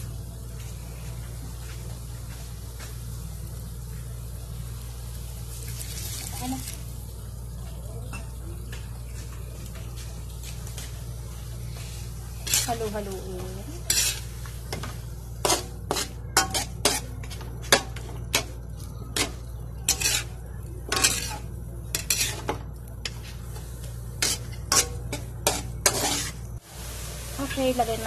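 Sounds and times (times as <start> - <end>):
faint sizzle: 0.0 - 28.0
metal spatula scraping a wok: 11.7 - 26.6.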